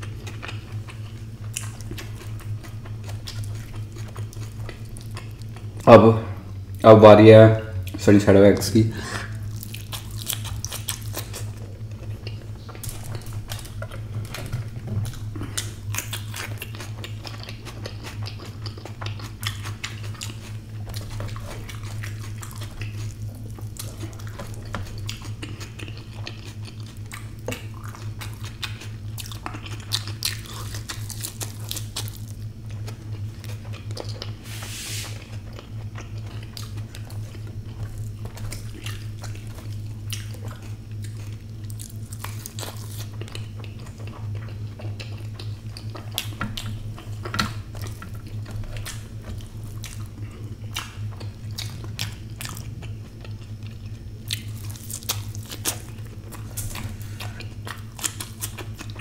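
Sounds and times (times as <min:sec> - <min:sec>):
chewing and wet mouth sounds: 0:00.0 - 0:06.9, 0:07.7 - 0:59.0
low hum: 0:00.0 - 0:59.0
brief hiss: 0:34.5 - 0:35.2.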